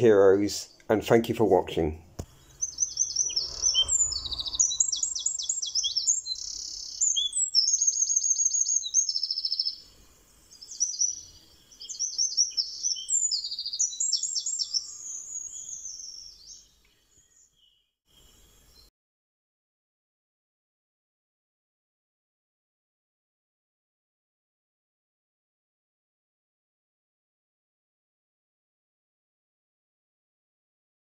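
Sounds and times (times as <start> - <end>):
songbird trilling: 2.4 - 9.8, 10.6 - 16.7.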